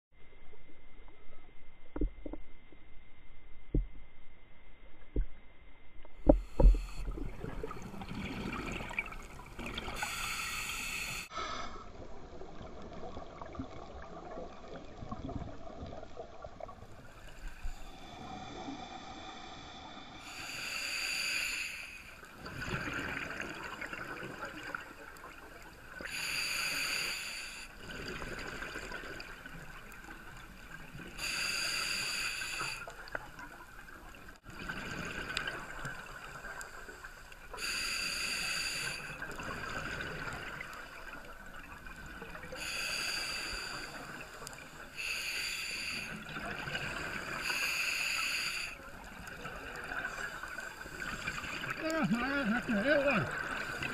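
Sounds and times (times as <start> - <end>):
regulator breathing underwater: 6.3 - 11.9, 17.4 - 24.2, 26.0 - 29.2, 31.0 - 33.2, 34.8 - 41.2, 42.2 - 53.9
exhaled bubbles rushing: 6.9 - 10.1.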